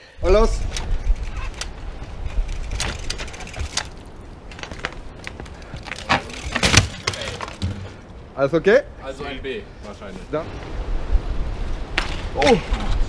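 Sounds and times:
wind rumble on microphone: 0.2s - 6.5s, 10.3s - 13.0s
bike rattling on concrete steps: 0.2s - 8.1s.

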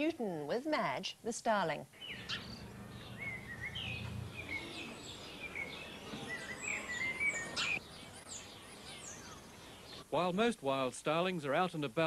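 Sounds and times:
starling singing: 2.0s - 9.6s.

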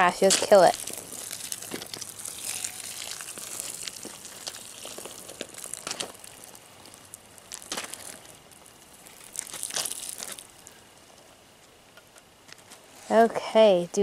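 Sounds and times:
water poured onto gravel: 0.0s - 10.8s.

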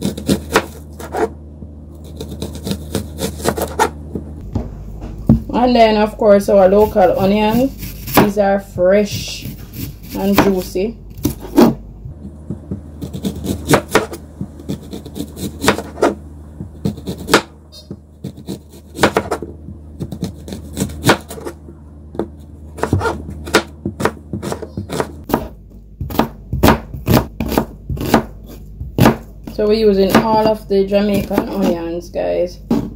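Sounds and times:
knife chopping on cutting board: 0.0s - 1.3s, 2.0s - 4.2s, 6.8s - 8.4s, 9.1s - 17.5s, 18.2s - 21.6s, 22.2s - 29.3s.

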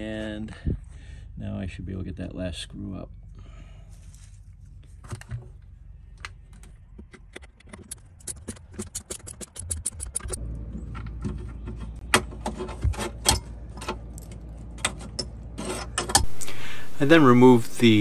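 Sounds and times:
drill rapid clicks: 8.0s - 10.4s.

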